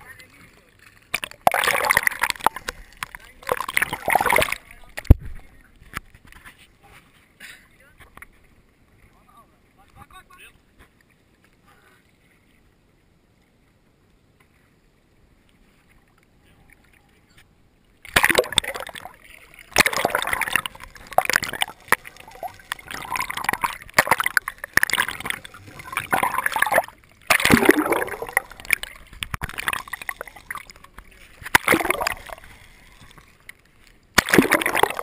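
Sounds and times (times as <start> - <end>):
underwater gurgling and sloshing: 0.0 - 7.4, 14.5 - 35.0.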